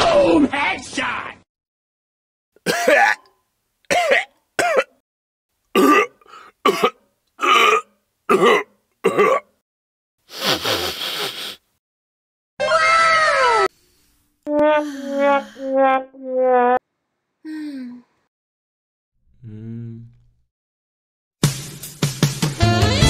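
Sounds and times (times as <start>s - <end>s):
person gagging and retching: 2.6s - 5.0s, 5.7s - 9.6s
person vomiting: 2.7s - 3.3s, 5.8s - 9.5s.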